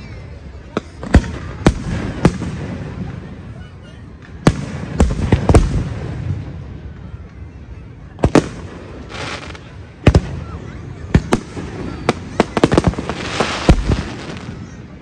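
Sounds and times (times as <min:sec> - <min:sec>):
crackling hiss of firework stars: 0:07.9 - 0:15.0.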